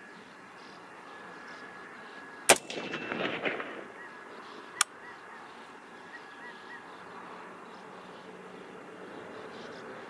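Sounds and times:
rifle shot echo: 0:02.5 - 0:04.2.

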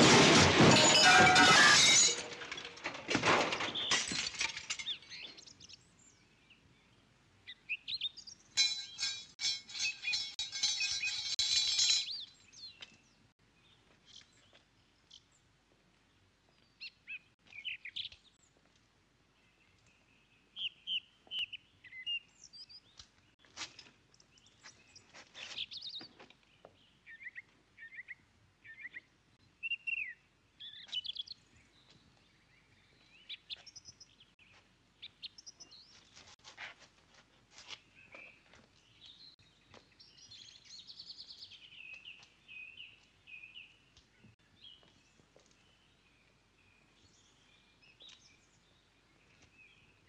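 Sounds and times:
bright clinking ringing: 0:00.6 - 0:02.7, 0:08.6 - 0:12.3
small birds chirping: 0:04.8 - 0:15.5, 0:16.1 - 0:18.6, 0:19.3 - 0:36.2, 0:37.7 - 0:50.0.

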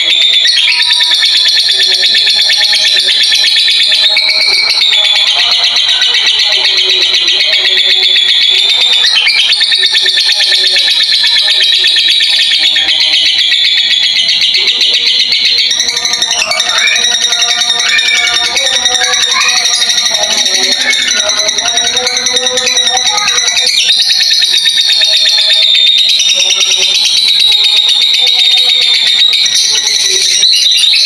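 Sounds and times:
lovebird chattering: 0:00.5 - 0:25.1.

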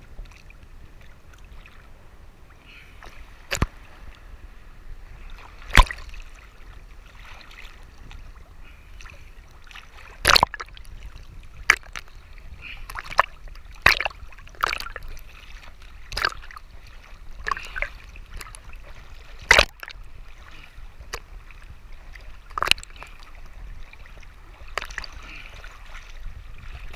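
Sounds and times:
low wash of water: 0:00.0 - 0:26.9
waves slapping against camera: 0:00.0 - 0:26.9.

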